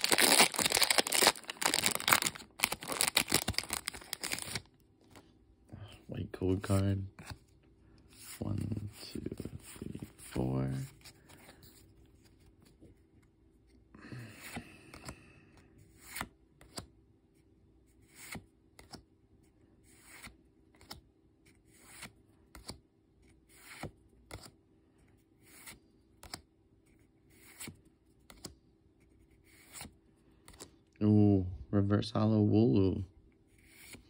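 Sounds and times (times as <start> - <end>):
cards rustling: 0.0 - 5.3, 6.5 - 13.2.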